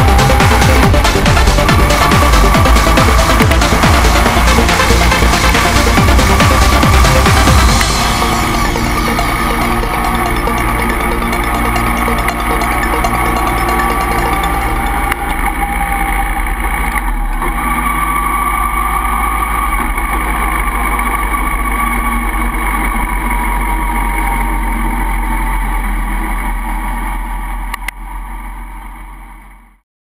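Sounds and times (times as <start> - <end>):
motorcycle engine running: 0.0 - 29.7.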